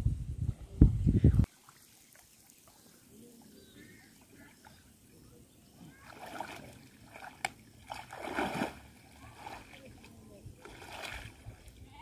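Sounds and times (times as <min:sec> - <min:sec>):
water sloshing from wading: 0:05.7 - 0:12.0.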